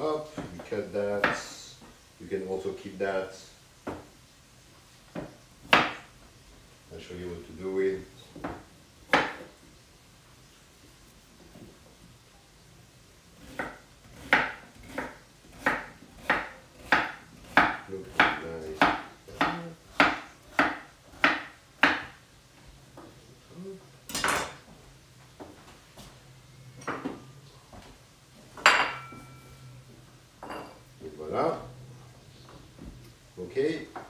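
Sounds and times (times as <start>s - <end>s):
knife chopping on wooden board: 1.2s - 1.5s, 5.1s - 6.1s, 8.4s - 9.5s, 13.4s - 22.2s.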